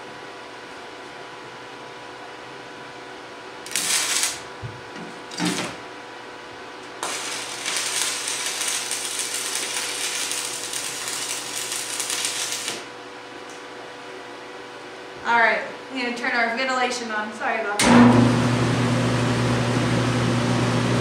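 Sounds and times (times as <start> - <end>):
welding arc crackling: 3.6 - 4.5, 6.9 - 12.9
welding arc sputters: 3.6 - 4.5, 7.0 - 12.9.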